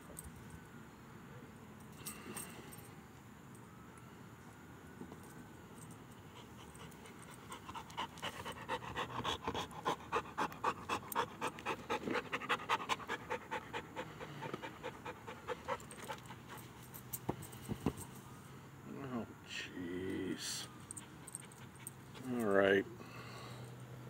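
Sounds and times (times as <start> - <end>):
dog panting fast: 6.4 - 16.8.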